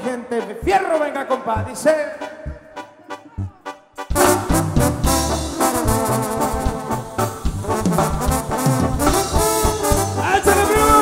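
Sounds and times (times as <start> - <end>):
trumpets playing melody: 0.0 - 11.0
bass and drums: 3.4 - 11.0.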